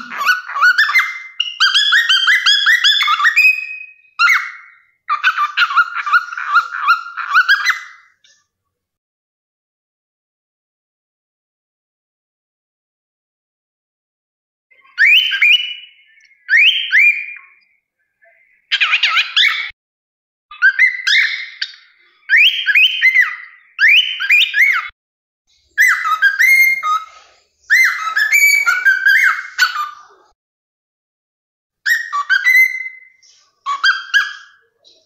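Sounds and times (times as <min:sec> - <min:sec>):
cockatiel whistling: 0:00.0 - 0:08.0, 0:14.8 - 0:17.6, 0:20.6 - 0:24.9, 0:25.8 - 0:30.0, 0:31.9 - 0:34.7.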